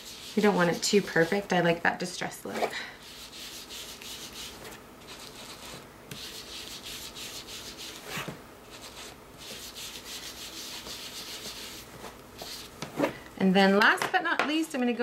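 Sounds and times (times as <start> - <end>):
foam pad rubbing on paper: 0.0 - 1.5, 3.0 - 12.7.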